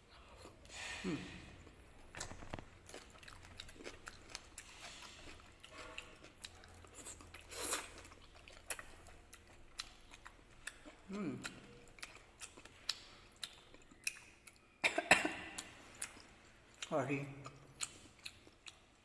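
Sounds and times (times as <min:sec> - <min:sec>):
person chewing: 0:00.0 - 0:19.0
breathy exhale: 0:00.7 - 0:01.6.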